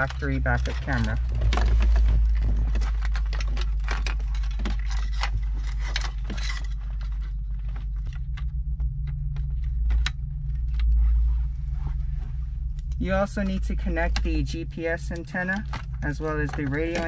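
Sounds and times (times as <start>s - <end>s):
plastic connectors rattling and clicking: 0.0s - 8.5s, 15.0s - 17.0s
steady low hum: 0.0s - 17.0s.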